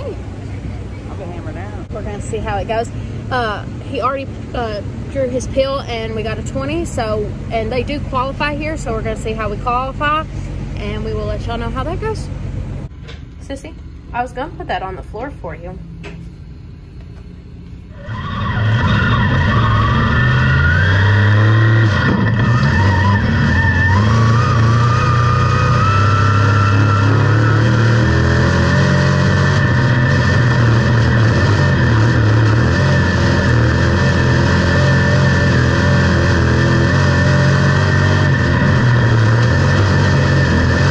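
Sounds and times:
race car engine revving: 0:17.9 - 0:40.9.

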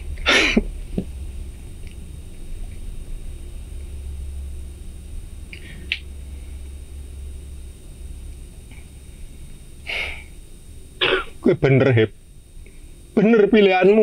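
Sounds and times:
steady low rumble: 0:00.0 - 0:14.0
noisy sniffling breath: 0:09.8 - 0:10.4.

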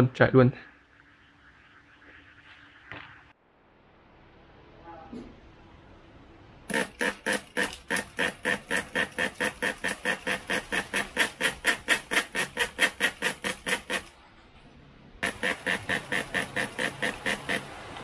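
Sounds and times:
small engine chugging in pops: 0:15.2 - 0:17.7.

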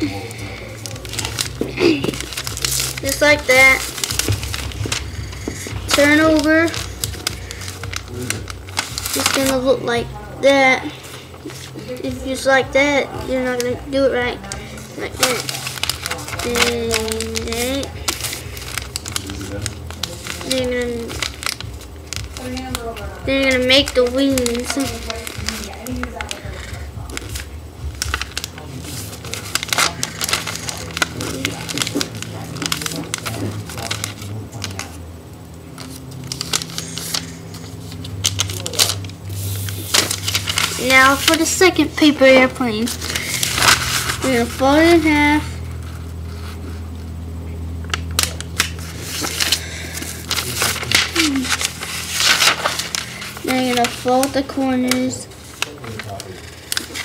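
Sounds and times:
paper folding and crackling: 0:00.0 - 0:35.1, 0:35.7 - 0:47.1, 0:47.8 - 0:57.0
hand swishing along paper fold: 0:35.8 - 0:46.8, 0:48.6 - 0:57.0.

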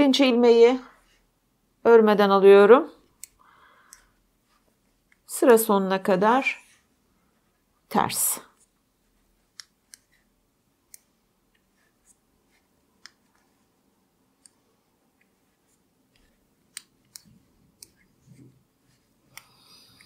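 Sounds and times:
knitting needles clicking: 0:03.0 - 0:04.2, 0:05.0 - 0:05.3, 0:09.4 - 0:13.6, 0:14.2 - 0:20.0.

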